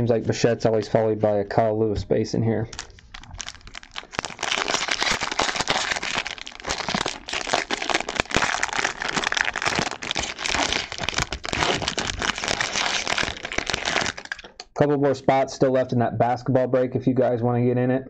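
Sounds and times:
plastic wrapper tearing and crinkling: 2.7 - 14.7.

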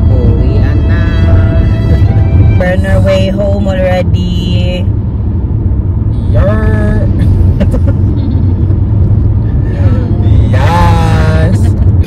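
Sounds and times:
car engine and road rumble: 0.0 - 12.0
laughter: 7.5 - 8.7.

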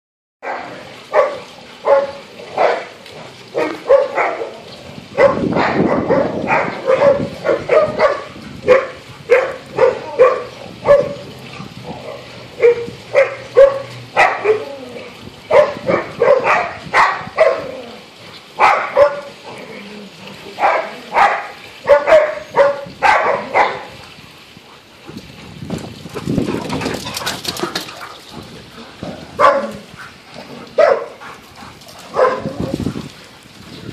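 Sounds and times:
dogs barking: 0.4 - 14.8, 15.5 - 17.8, 18.6 - 19.5, 20.5 - 24.0, 29.3 - 32.9.

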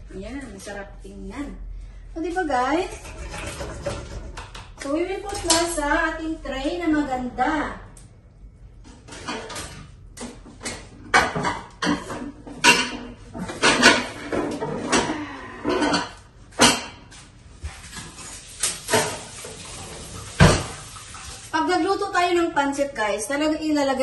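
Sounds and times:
utensils scraping and clinking on pot: 2.8 - 4.5, 11.4 - 16.8.

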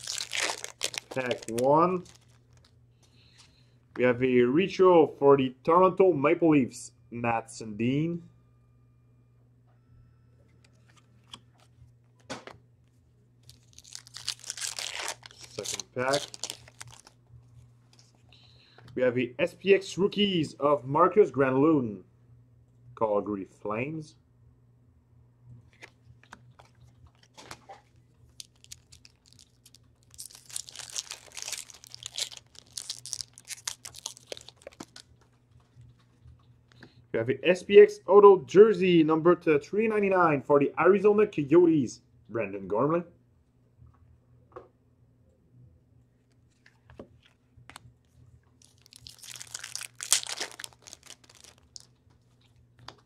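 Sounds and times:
card pack wrapper tearing: 0.0 - 2.7, 13.4 - 17.2, 28.3 - 35.1, 48.6 - 52.0.

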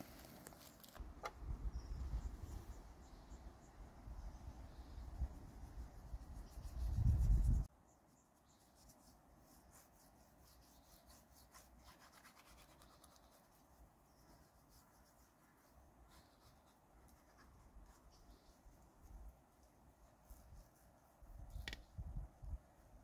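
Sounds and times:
hand rubbing spice into fish: 5.3 - 7.7, 8.5 - 21.8.

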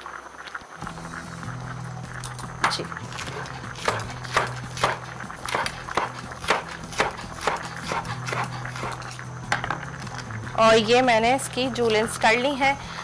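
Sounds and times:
low steady hum: 0.8 - 13.0
knife chopping on wooden board: 2.6 - 9.0.

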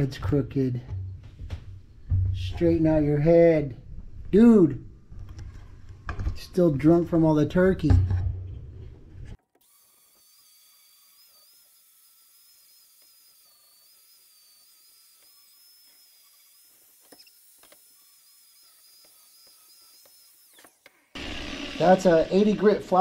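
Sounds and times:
angle grinder grinding steel: 9.6 - 23.0.

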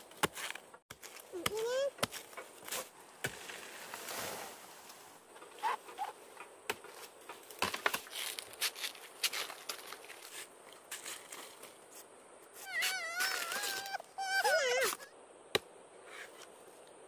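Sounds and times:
stalk snapping and knocking: 5.9 - 10.3
plant leaves rustling and crackling: 6.9 - 12.0.

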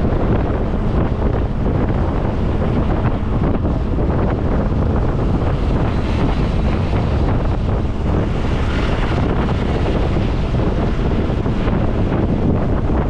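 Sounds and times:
bus road and engine noise: 0.0 - 13.0
wind rushing over microphone: 0.0 - 13.0.

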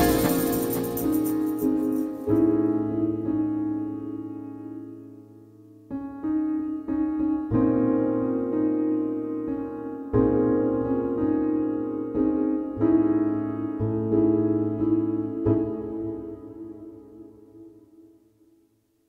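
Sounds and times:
piano chords: 0.0 - 18.2.

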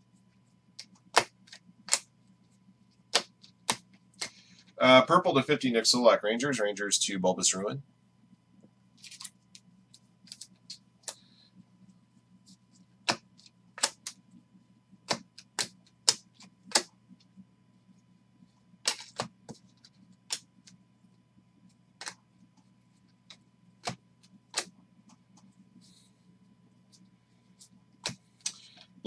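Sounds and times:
trading cards clicking and snapping: 0.8 - 2.1, 3.1 - 4.4, 13.0 - 14.2, 15.1 - 16.9, 18.8 - 20.8, 22.0 - 22.2, 23.3 - 24.8.

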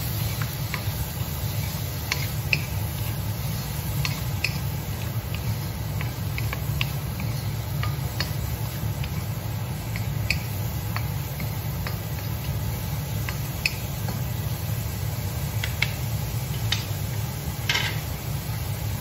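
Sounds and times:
soft sizzle: 0.0 - 19.0
wooden spatulas scraping steel wok: 1.4 - 8.4.

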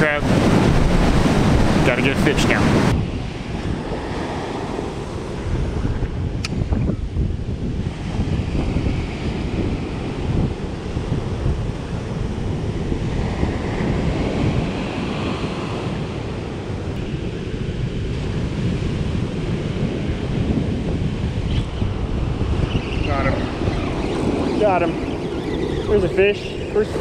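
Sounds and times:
surf breaking on beach: 0.0 - 6.4
wind buffeting microphone: 0.0 - 27.0.

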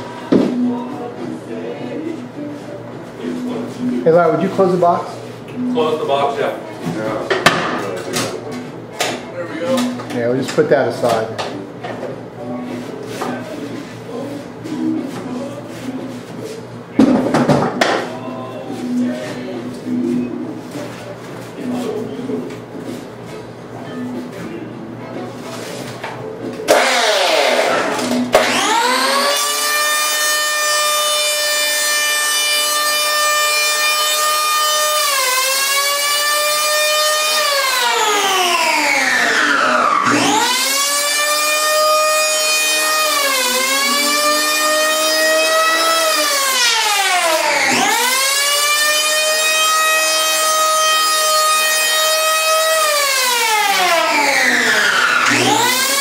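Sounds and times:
electric planer whining: 26.7 - 56.0.

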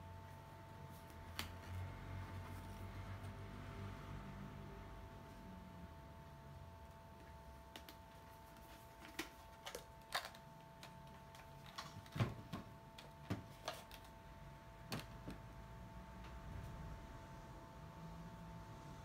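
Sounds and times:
faint steady hum: 0.0 - 19.0.

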